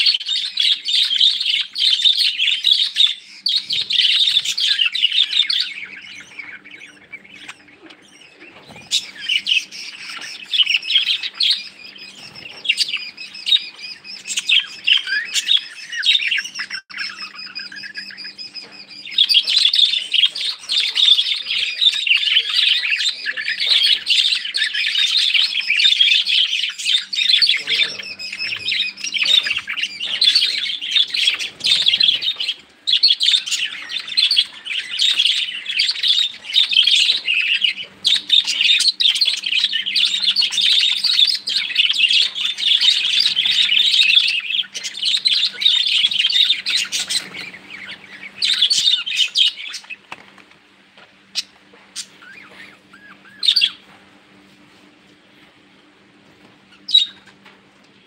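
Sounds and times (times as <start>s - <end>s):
budgerigars chattering and chirping: 0.0s - 50.0s, 51.0s - 54.0s, 56.7s - 57.5s.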